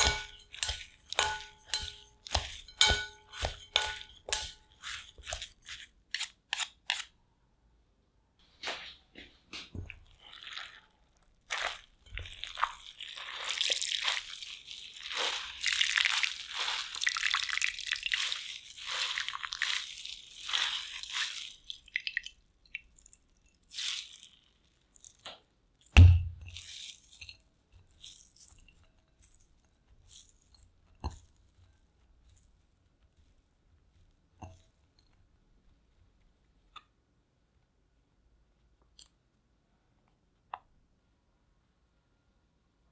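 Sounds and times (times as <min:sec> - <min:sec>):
handling shreds on a plate: 0:00.0 - 0:07.1, 0:11.5 - 0:22.2
squeezing wet shredded potato: 0:00.0 - 0:07.1, 0:09.8 - 0:35.1.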